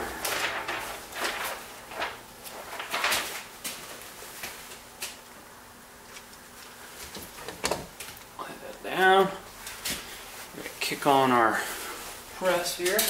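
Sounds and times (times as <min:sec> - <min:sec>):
plastic sheet handling knocks and rustles: 0:00.0 - 0:04.8.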